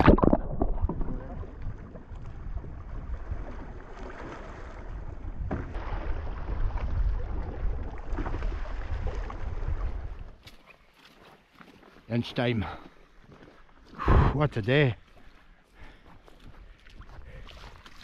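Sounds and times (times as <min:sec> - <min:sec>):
water sloshing against hull: 0:00.0 - 0:12.1, 0:15.0 - 0:18.0
paddle blades splashing: 0:00.0 - 0:14.0, 0:15.0 - 0:18.0
wind buffeting microphone: 0:04.6 - 0:10.4.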